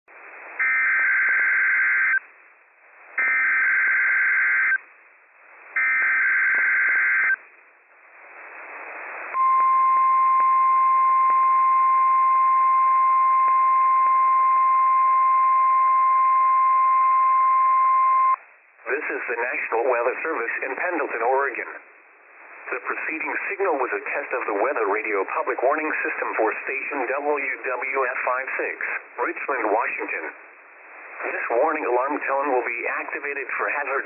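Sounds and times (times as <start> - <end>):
radio hiss: 8.0 - 9.5, 18.8 - 34.0.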